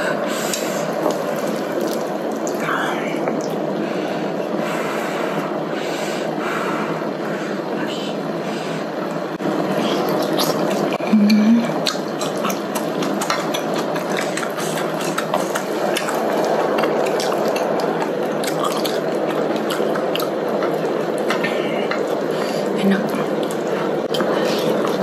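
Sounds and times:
broth simmering and bubbling: 0:00.0 - 0:25.0
wet chewing: 0:11.8 - 0:25.0.

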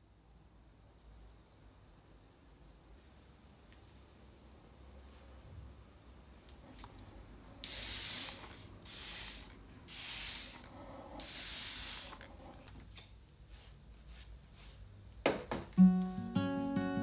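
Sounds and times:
spray bottle hissing: 0:07.6 - 0:12.4
knock: 0:15.2 - 0:15.7.

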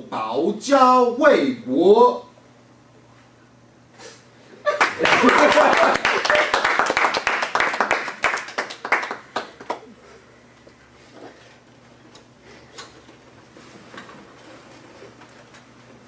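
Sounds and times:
small group clapping: 0:04.7 - 0:10.0.

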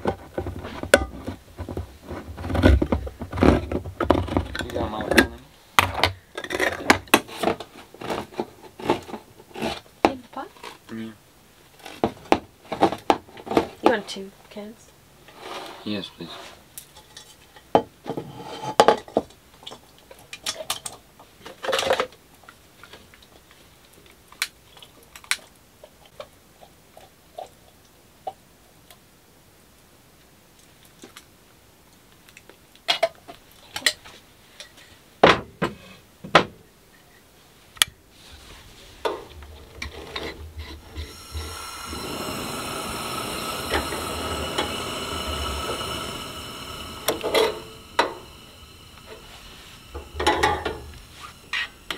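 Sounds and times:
gas burner hissing: 0:00.0 - 0:09.7, 0:37.8 - 0:51.9.

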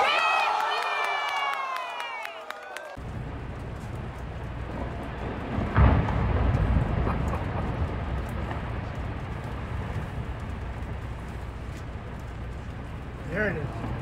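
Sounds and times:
low rumble of falling ice: 0:03.0 - 0:14.0
glacier ice calving crash: 0:03.5 - 0:14.0.

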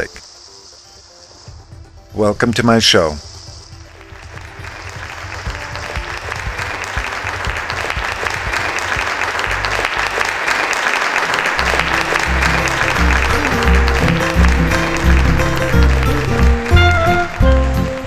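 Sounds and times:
music with pulsing bass: 0:11.6 - 0:18.0.

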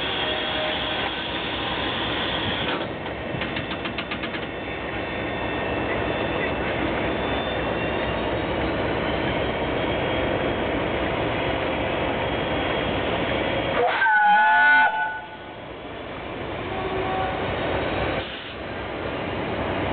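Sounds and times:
steam locomotive hissing steam: 0:00.0 - 0:03.0, 0:18.0 - 0:18.8.

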